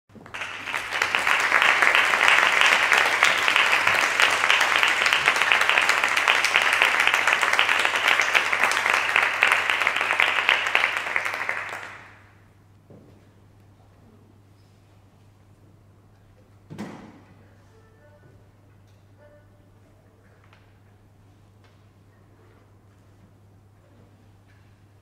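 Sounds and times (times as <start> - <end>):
audience applauding: 0.1 - 12.3.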